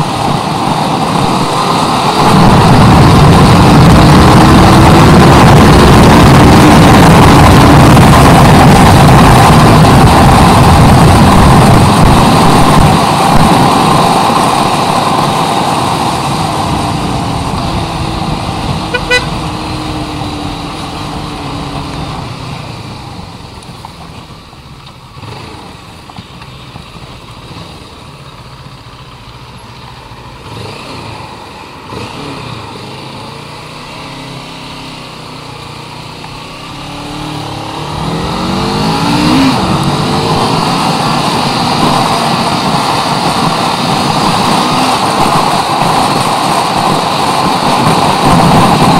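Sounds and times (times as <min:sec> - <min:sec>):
wind rushing over microphone: 0:00.0 - 0:23.8, 0:36.4 - 0:48.9
motorcycle engine running: 0:00.0 - 0:48.9.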